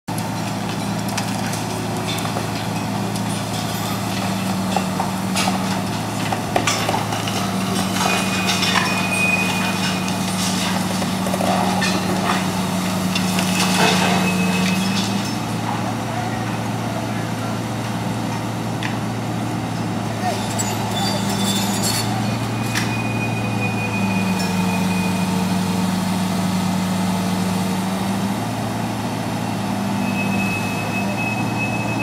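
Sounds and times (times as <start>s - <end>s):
excavator diesel engine running: 0.1s - 32.0s
concrete breaking and debris falling: 0.5s - 16.0s.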